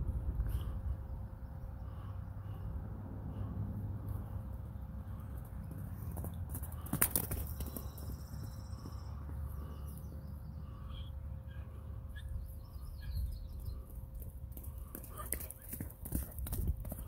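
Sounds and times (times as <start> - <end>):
wind rumble on microphone: 0.0 - 4.8, 16.1 - 17.0
birds chirping: 0.5 - 3.5, 4.1 - 15.8.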